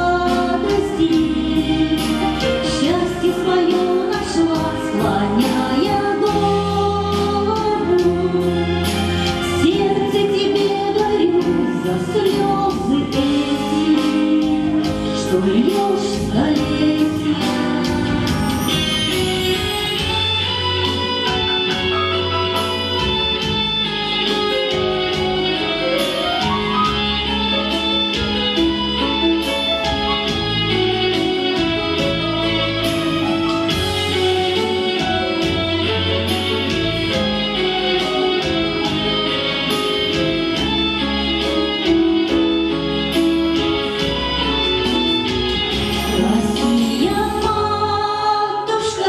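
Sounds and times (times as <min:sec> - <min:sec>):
woman singing into microphone: 0:00.0 - 0:18.9, 0:43.6 - 0:49.0
instrumental backing with beat: 0:00.0 - 0:48.7.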